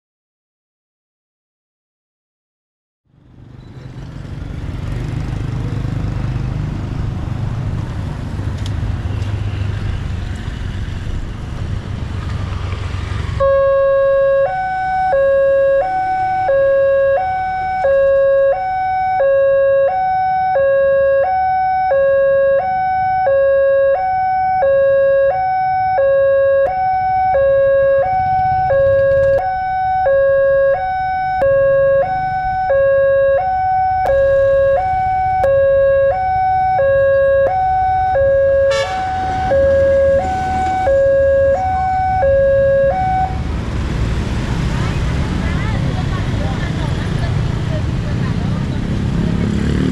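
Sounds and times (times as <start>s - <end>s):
two-tone level crossing alarm: 13.4s - 43.4s.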